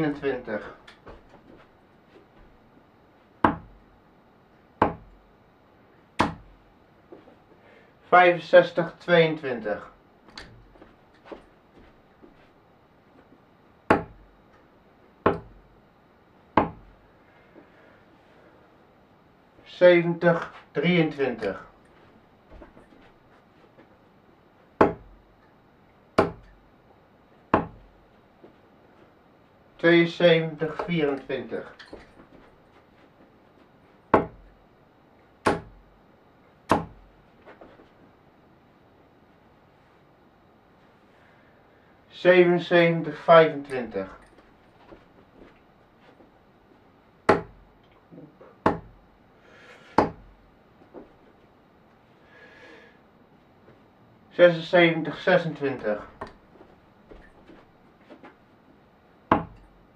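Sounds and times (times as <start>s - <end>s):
darts thudding into dartboard: 3.4s - 3.8s, 4.8s - 5.1s, 6.2s - 6.5s, 13.9s - 14.2s, 15.3s - 15.6s, 16.6s - 16.9s, 24.8s - 25.2s, 26.2s - 26.6s, 27.5s - 27.8s, 34.2s - 34.5s, 35.4s - 35.8s, 36.7s - 37.0s, 47.3s - 47.6s, 48.7s - 48.9s, 49.9s - 50.3s, 59.3s - 59.6s.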